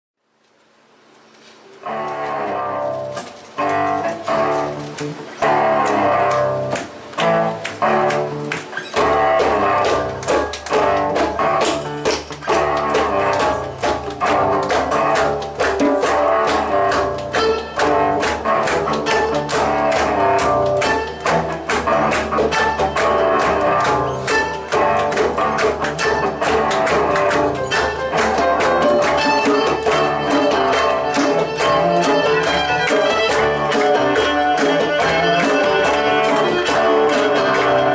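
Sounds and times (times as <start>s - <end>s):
acoustic guitar: 1.3s - 37.9s
cello: 1.8s - 37.9s
hand drum: 2.0s - 37.9s
fiddle: 5.6s - 37.9s.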